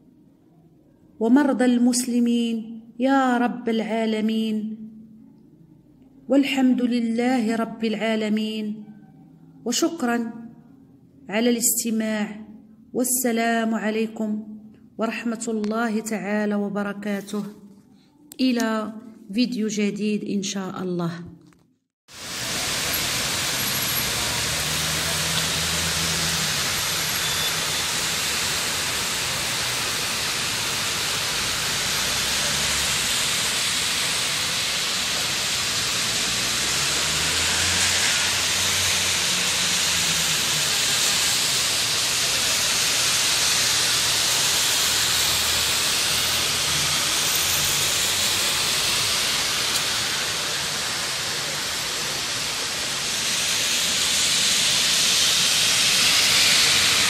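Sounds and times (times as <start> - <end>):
cars passing on wet street: 22.1 - 57.0
heavy rain falling: 22.1 - 57.0.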